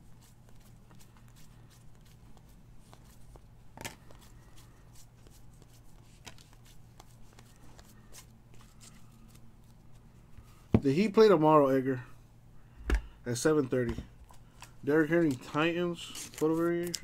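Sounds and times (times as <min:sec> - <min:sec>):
faint low hum: 0:00.0 - 0:17.0
cards flipping and clicking: 0:00.2 - 0:10.0, 0:13.8 - 0:17.0.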